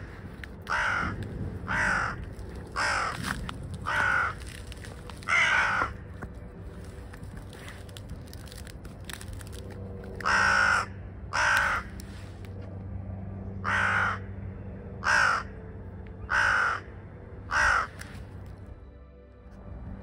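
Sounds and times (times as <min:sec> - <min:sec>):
crows cawing: 0:00.0 - 0:06.3, 0:09.4 - 0:12.0, 0:13.6 - 0:14.4, 0:15.0 - 0:15.6, 0:16.2 - 0:18.4.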